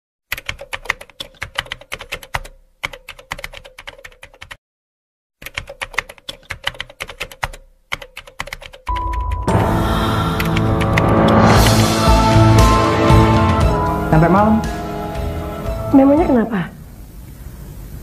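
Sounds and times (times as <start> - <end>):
rapid keystroke clicks: 0.3 - 4.6, 5.4 - 9.5.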